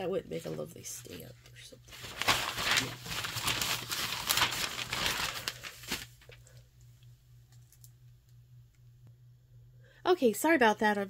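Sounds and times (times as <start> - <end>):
low steady hum: 0.0 - 11.0
rustling and crinkling: 0.3 - 6.5.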